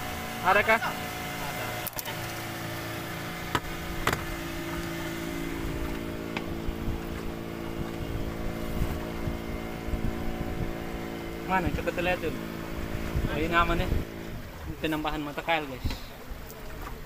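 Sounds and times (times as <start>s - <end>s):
boat engine running: 0.0s - 17.0s
sharp knocks: 3.4s - 4.4s.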